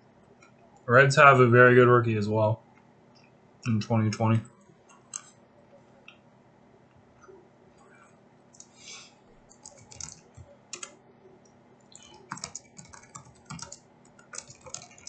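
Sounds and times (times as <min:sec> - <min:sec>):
computer keyboard typing: 0:04.9 - 0:05.4, 0:09.4 - 0:11.0, 0:11.9 - 0:15.0.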